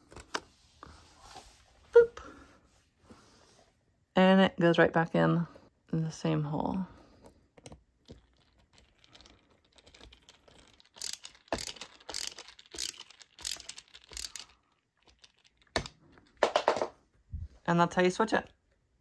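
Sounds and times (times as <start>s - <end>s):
screwdriver clicking: 11.0s - 14.5s.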